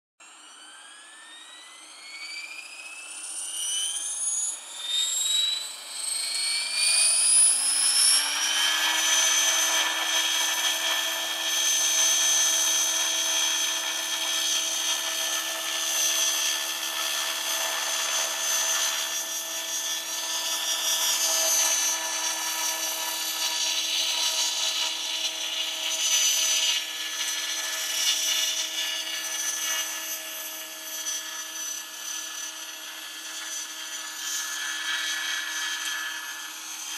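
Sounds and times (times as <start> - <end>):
model helicopter motor whine: 0.2 - 36.9.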